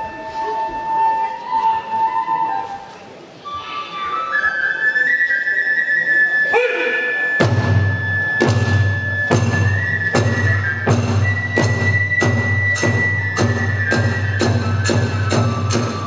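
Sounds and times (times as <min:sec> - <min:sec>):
bamboo flute melody: 0:00.0 - 0:16.0
drums striking a beat: 0:07.4 - 0:16.0.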